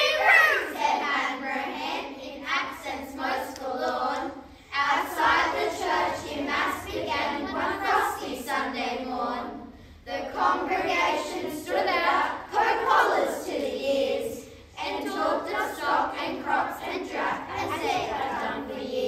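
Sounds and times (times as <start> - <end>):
children reciting in unison: 0.0 - 19.0.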